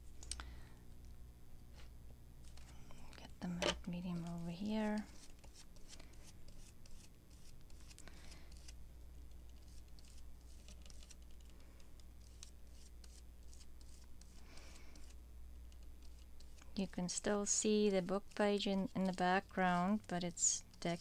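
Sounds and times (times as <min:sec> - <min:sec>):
small clicks and scratches on paper: 0:04.9 - 0:21.0.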